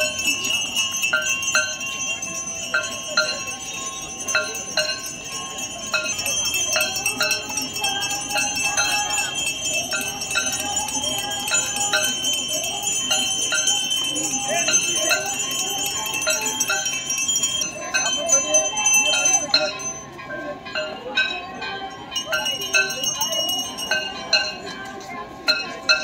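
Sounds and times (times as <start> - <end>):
metal bells ringing: 0.0 - 26.0
voices singing or chanting: 0.0 - 26.0.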